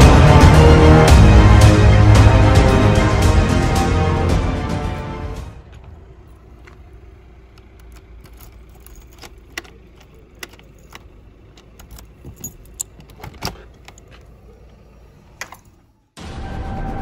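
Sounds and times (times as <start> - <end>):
door handle and latch clicks: 7.6 - 14.2
keys jangling at a lock: 7.6 - 14.4.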